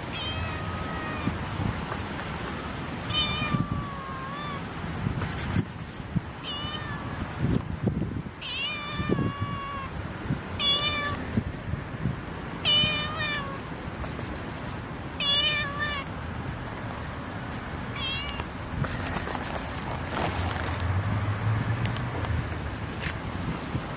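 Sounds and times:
cat meowing: 0:00.0 - 0:01.4, 0:02.6 - 0:04.6, 0:06.4 - 0:07.2, 0:08.4 - 0:09.9, 0:10.6 - 0:11.2, 0:12.6 - 0:13.7, 0:15.2 - 0:16.1, 0:17.9 - 0:19.2.

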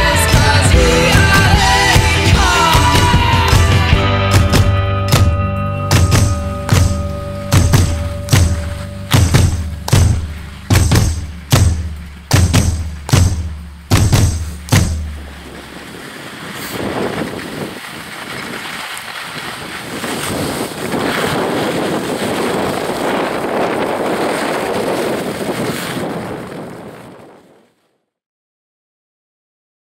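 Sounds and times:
skis scraping on snow: 0:06.1 - 0:27.8
wind on microphone: 0:06.2 - 0:27.7.

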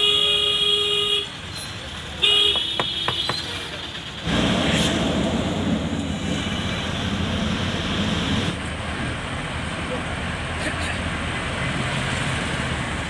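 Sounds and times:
vehicle horn toot: 0:00.0 - 0:01.3, 0:02.2 - 0:03.5
bus engine and road rumble: 0:00.0 - 0:13.0.

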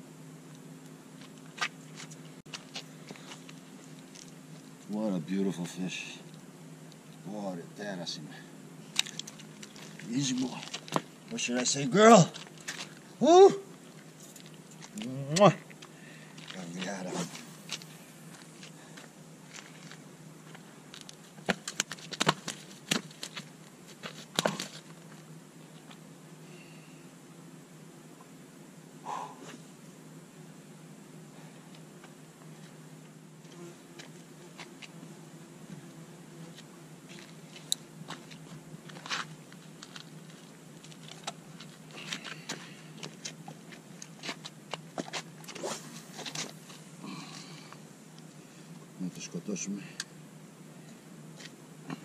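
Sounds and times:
faint low hum: 0:00.0 - 0:52.0
flip-flop footsteps on stone: 0:09.0 - 0:11.1, 0:16.4 - 0:25.2.

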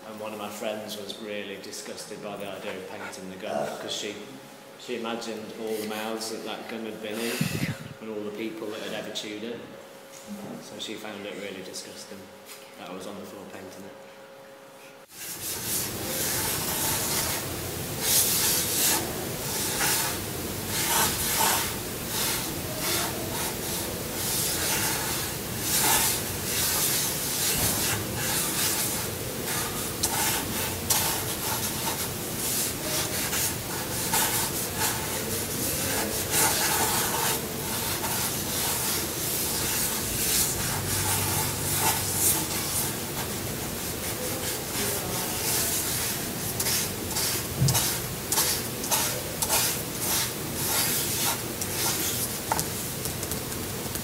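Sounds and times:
chalk scraping on paving: 0:15.1 - 0:52.7.

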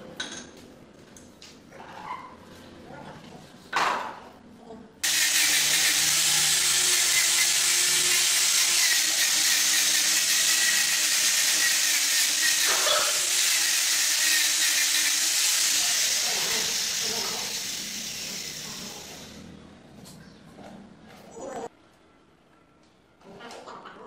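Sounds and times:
power sander running: 0:05.0 - 0:19.4.

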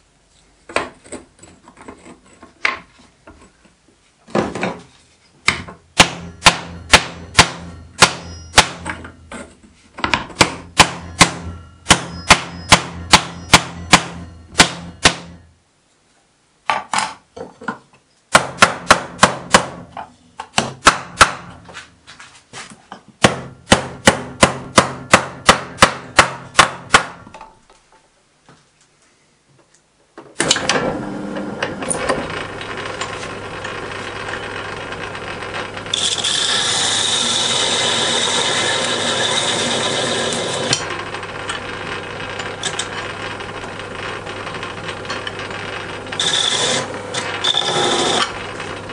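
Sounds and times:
hammer blows on copper: 0:10.4 - 0:15.4
metal lathe running: 0:30.8 - 0:48.9.

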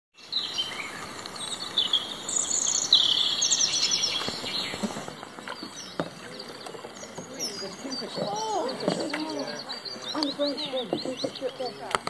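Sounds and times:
songbirds singing: 0:00.2 - 0:12.0.

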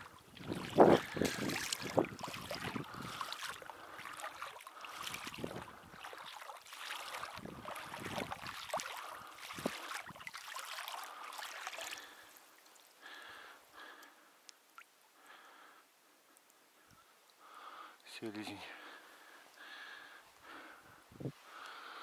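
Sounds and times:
water sloshing and splashing: 0:00.0 - 0:13.2.

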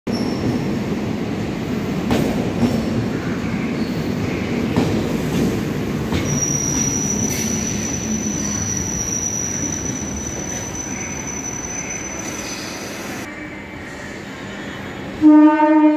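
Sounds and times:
train rumbling: 0:00.1 - 0:15.9
high wheel squeal: 0:06.2 - 0:13.3.

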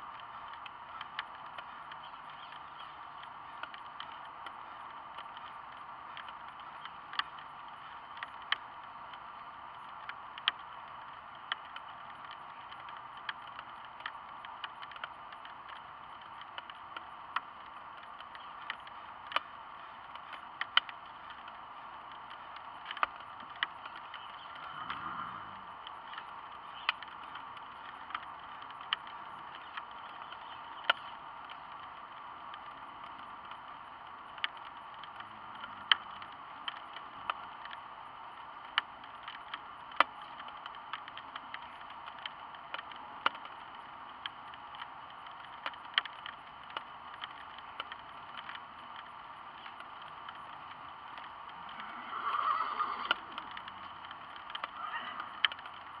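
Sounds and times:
rain hiss: 0:00.0 - 0:56.0
raindrop ticks: 0:00.0 - 0:56.0.

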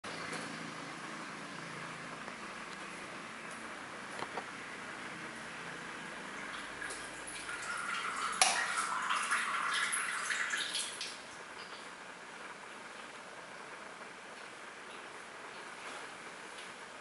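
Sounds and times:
cat urinating into toilet water: 0:06.3 - 0:11.3.

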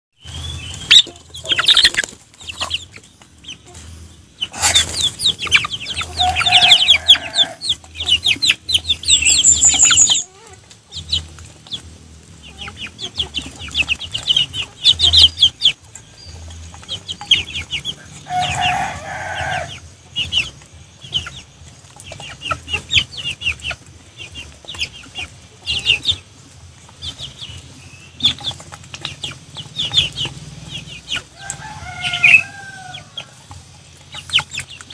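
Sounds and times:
birds pecking at feed bowl: 0:00.2 - 0:34.9
chicks clucking and cheeping: 0:00.2 - 0:34.9.

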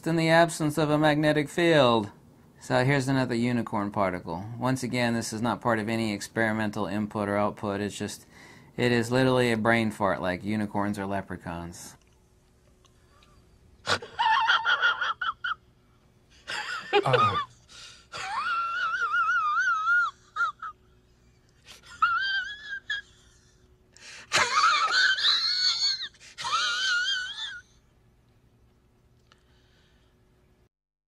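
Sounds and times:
man's falsetto cries and warbles: 0:18.5 - 0:20.6, 0:25.7 - 0:27.8.

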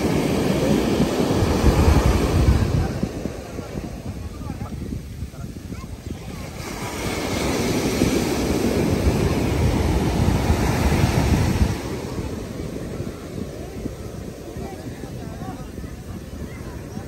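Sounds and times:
surf breaking on sandy beach: 0:00.0 - 0:17.0.

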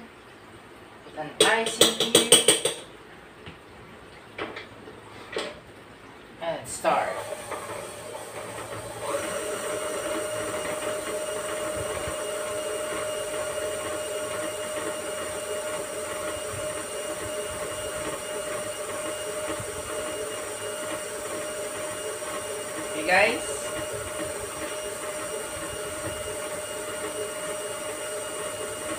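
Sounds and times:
stand mixer whining: 0:06.9 - 0:28.9.

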